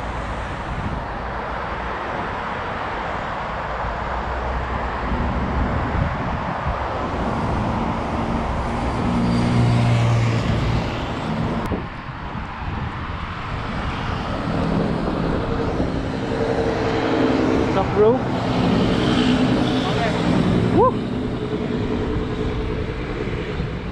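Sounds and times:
road traffic noise: 0.0 - 23.9
vehicle passing: 1.7 - 11.8, 13.3 - 23.9.

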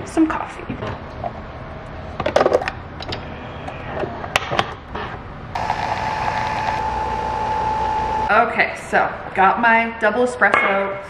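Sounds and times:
coffee machine brewing hum: 5.6 - 8.3.

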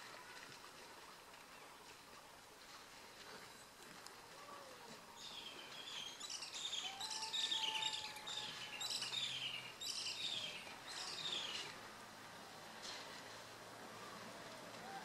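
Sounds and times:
bird singing falling chirps: 5.2 - 11.8.

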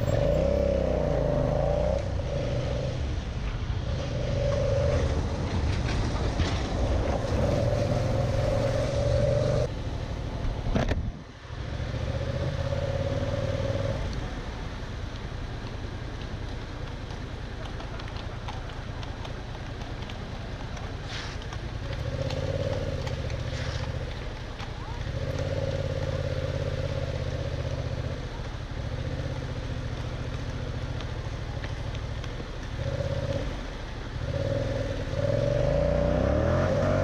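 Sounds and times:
motorcycle engine revving: 0.0 - 3.1, 3.8 - 9.7, 21.8 - 37.0.

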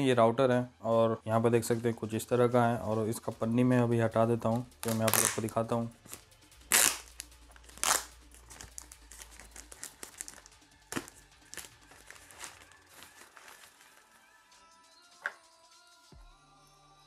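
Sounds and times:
plastic bag crinkling: 6.8 - 14.3.

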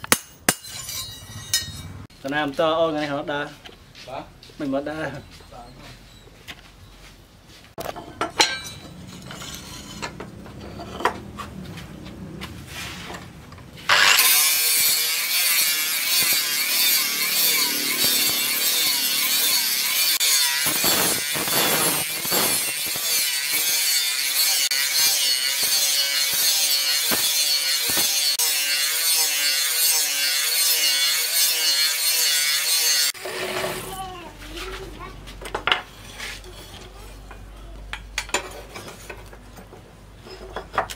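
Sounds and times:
angle grinder grinding steel: 0.5 - 2.1, 8.4 - 11.2, 13.8 - 34.1.

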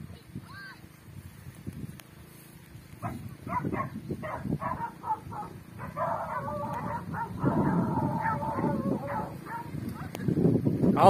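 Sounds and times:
dog barking in short yelps: 3.0 - 10.1
dog whining howl: 4.7 - 9.7.

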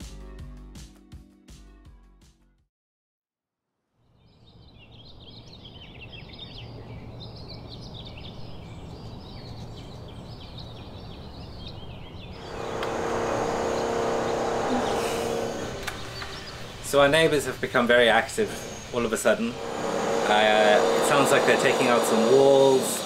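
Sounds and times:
birds chirping: 4.0 - 23.0
construction machine noise: 12.4 - 23.0
steady low hum: 12.4 - 23.0.

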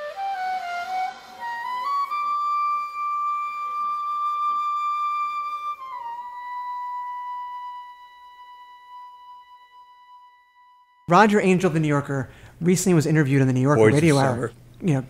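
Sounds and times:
solo flute: 0.0 - 11.0.

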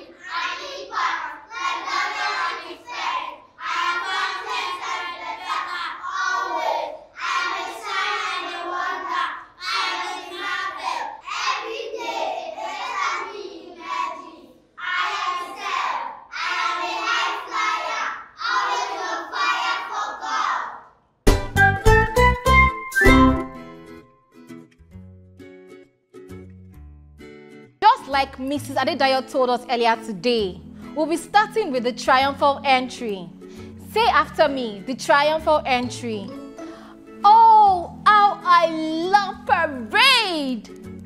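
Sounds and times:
children reciting together: 0.0 - 21.0.

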